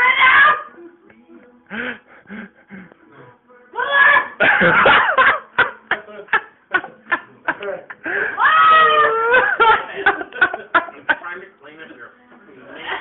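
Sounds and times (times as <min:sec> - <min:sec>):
people laughing: 0:04.3 - 0:11.5.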